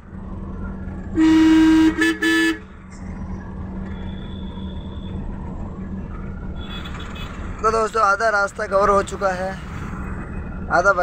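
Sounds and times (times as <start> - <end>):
low rumble of moving vehicle: 0.0 - 11.0
vehicle horn honking: 1.2 - 2.6.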